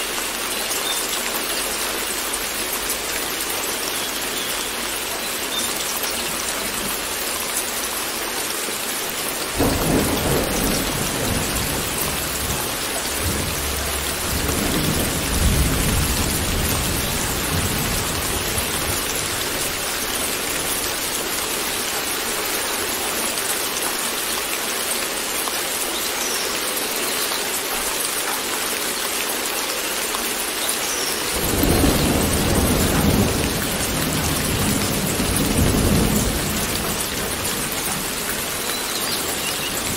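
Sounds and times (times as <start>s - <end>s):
steady rain: 0.0s - 39.9s
rolling thunder: 9.6s - 19.8s.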